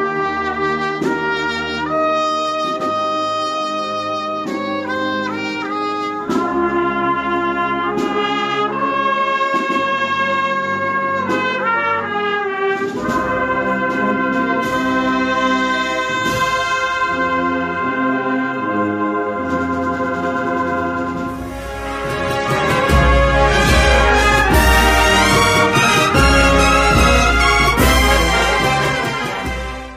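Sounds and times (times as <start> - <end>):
brass band playing a march: 0.0 - 29.9
percussion hits: 21.0 - 29.9.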